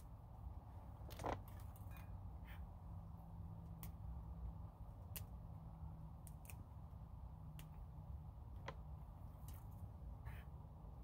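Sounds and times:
low steady hum: 0:00.0 - 0:11.0
fingernails plucking petals: 0:03.5 - 0:10.0.

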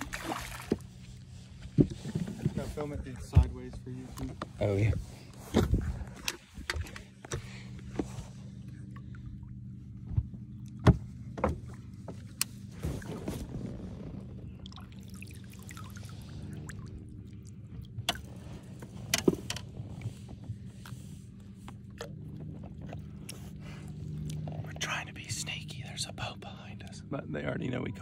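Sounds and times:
fish splashing and thrashing: 0:00.0 - 0:02.5, 0:14.5 - 0:24.6
steady low hum: 0:00.0 - 0:28.0
sharp knocks against boat: 0:01.6 - 0:02.6, 0:10.0 - 0:12.4.

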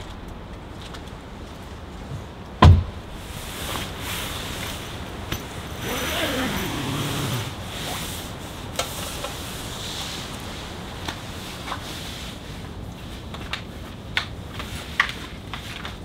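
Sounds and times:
heavy thump: 0:02.6 - 0:03.0.

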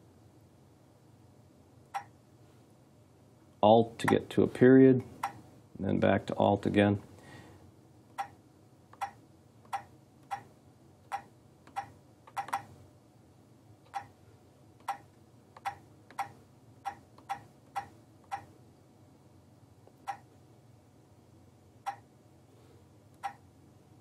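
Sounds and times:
stylus tapping touchscreen keys: 0:01.9 - 0:02.1, 0:08.1 - 0:10.5, 0:11.1 - 0:12.7, 0:14.8 - 0:18.5, 0:20.0 - 0:20.3, 0:23.2 - 0:23.4.

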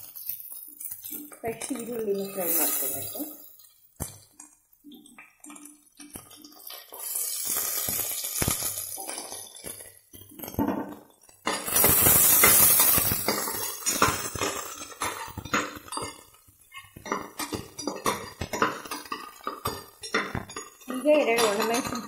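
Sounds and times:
spoon clinking and scraping pot: 0:00.0 - 0:04.3, 0:05.4 - 0:22.0
oil sizzling: 0:00.0 - 0:22.0.

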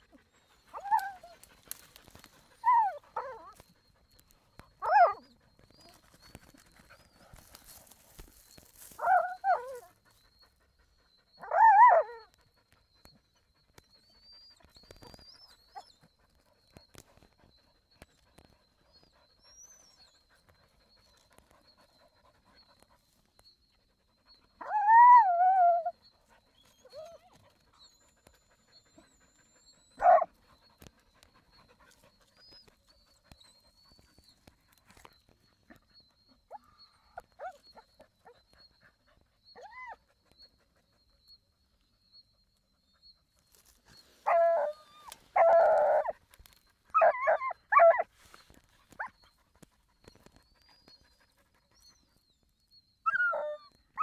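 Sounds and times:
dog whining: 0:00.5 - 0:01.4, 0:28.7 - 0:30.3, 0:44.2 - 0:46.2, 0:46.9 - 0:48.1, 0:53.0 - 0:54.0
faint dog whimpers: 0:18.4 - 0:41.4
dog yelping: 0:30.0 - 0:30.3, 0:44.3 - 0:46.1, 0:47.0 - 0:48.1.

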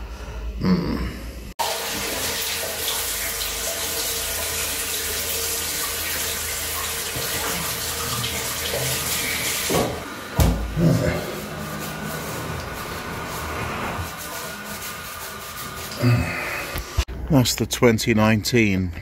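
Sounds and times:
tap running into basin: 0:01.6 - 0:10.7.

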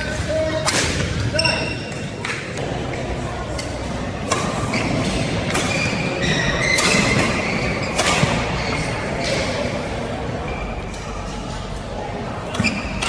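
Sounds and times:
sneakers squeaking on court: 0:04.4 - 0:09.5, 0:12.5 - 0:13.0.

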